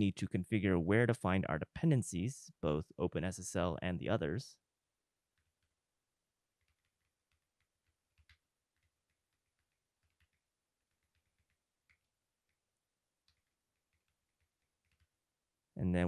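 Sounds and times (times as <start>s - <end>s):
faint typing on computer keyboard: 5.3s - 15.4s.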